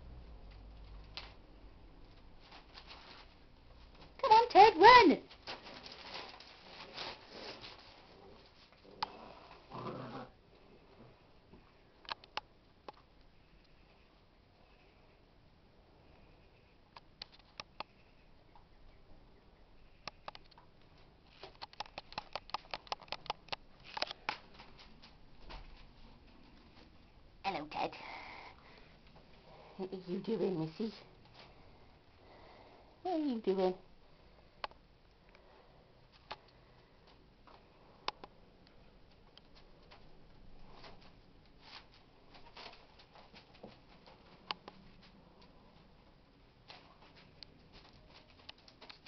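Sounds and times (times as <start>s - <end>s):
sharp clicks: 20.0s - 20.7s, 21.4s - 24.4s.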